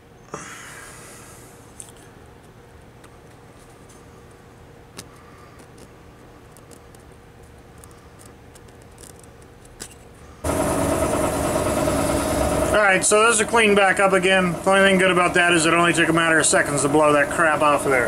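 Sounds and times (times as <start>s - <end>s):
loud steady machine noise: 10.4s - 18.0s.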